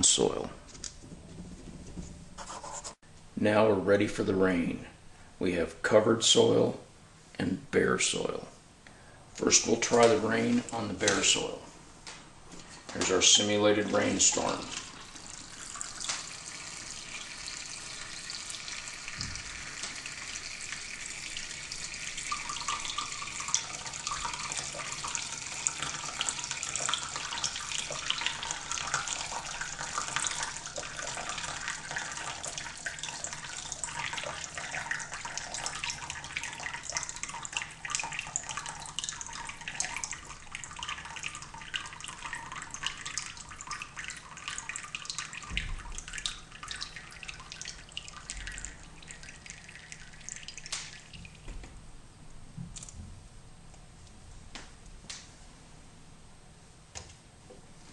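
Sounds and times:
water drops pattering on soil: 16.0s - 16.4s, 50.4s - 51.6s.

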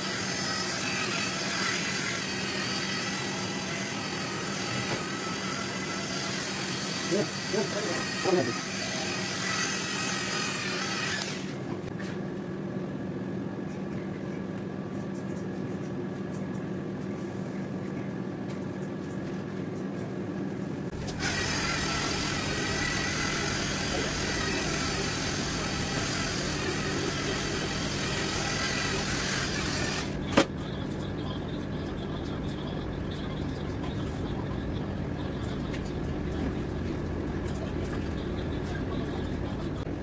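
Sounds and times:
electric polisher motor running: 0.0s - 11.6s, 21.0s - 30.2s.

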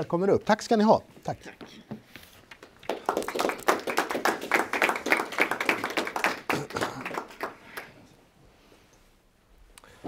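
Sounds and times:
people clapping: 2.5s - 8.0s.

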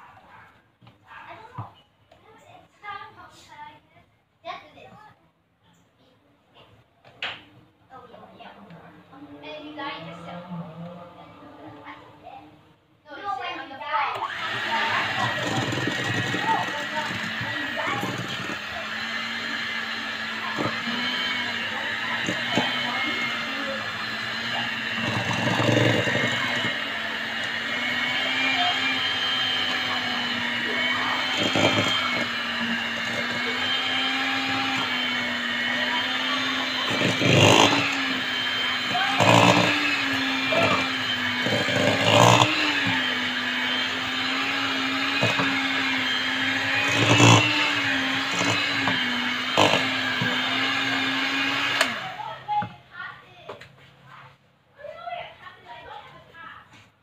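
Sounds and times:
electric mixer whisking in metal bowl: 8.0s - 12.4s, 13.2s - 53.1s.

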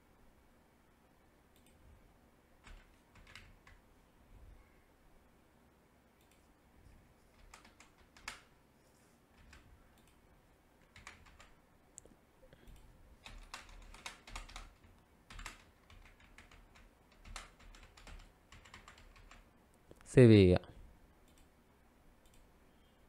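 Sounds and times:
faint keyboard typing: 1.5s - 1.8s, 2.6s - 3.9s, 6.2s - 8.6s, 9.3s - 20.0s, 21.2s - 21.6s, 22.2s - 22.5s.

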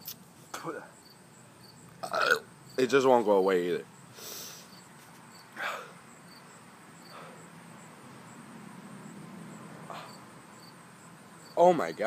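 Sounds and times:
insects chirping: 0.0s - 12.0s
man exhaling breathily: 5.6s - 6.0s, 9.9s - 10.3s.

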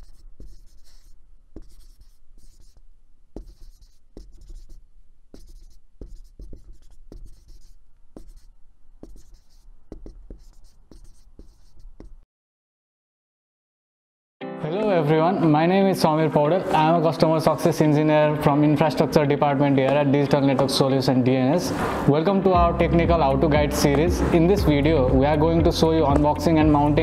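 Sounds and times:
marker scribbling: 0.0s - 12.2s.

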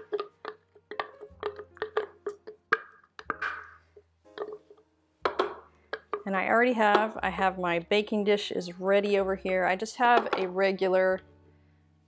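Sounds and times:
wooden spoon tapping plastic cup: 0.0s - 3.8s, 4.4s - 7.2s, 10.1s - 10.6s
wooden spoon scraping: 0.0s - 4.8s.

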